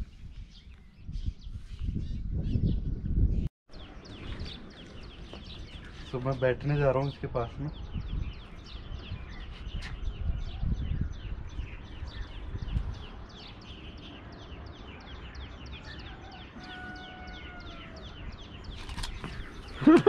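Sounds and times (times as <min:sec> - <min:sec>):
low rumbles on microphone: 0:00.0 - 0:06.2, 0:07.1 - 0:13.7
bird chirping: 0:00.0 - 0:20.0.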